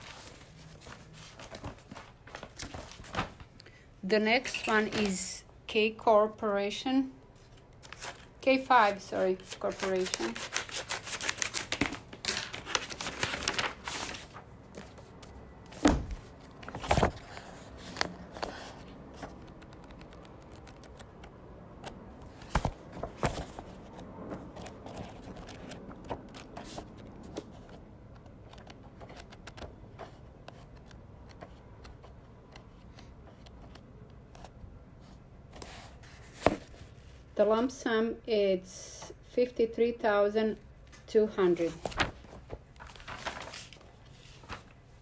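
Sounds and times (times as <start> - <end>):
paper rustling and tearing: 9.4 - 14.9, 41.7 - 44.8.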